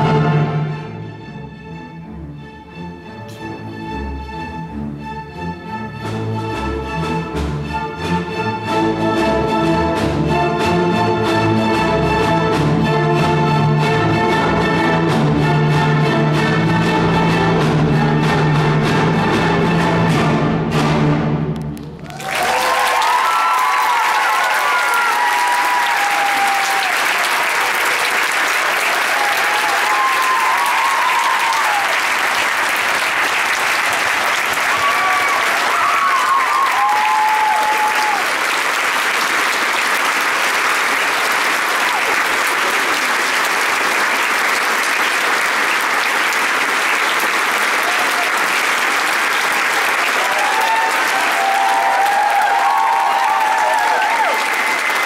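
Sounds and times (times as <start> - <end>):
audience applauding: 21.6 - 55.0
audience cheering: 21.9 - 55.0.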